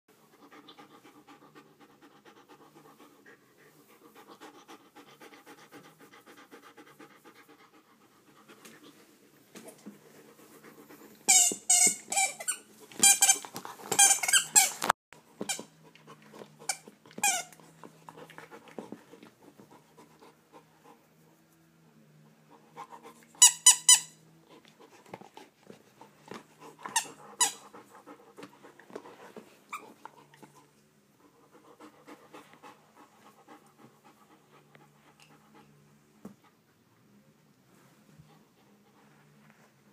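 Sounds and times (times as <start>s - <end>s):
dog panting: 0.1s - 12.5s, 15.2s - 21.4s, 22.5s - 23.4s, 24.4s - 36.6s
dog chewing rubber toy: 10.7s - 20.8s, 22.6s - 30.8s
squeaky toy squeaking: 11.3s - 14.9s, 16.7s - 17.5s, 23.4s - 24.2s, 26.9s - 27.6s.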